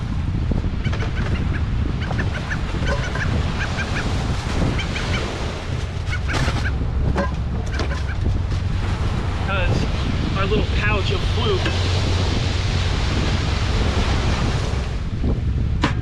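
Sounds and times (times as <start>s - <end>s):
wind buffeting microphone: 0.0s - 16.0s
squeaky honk-like calls: 0.8s - 4.1s, 6.0s - 6.8s.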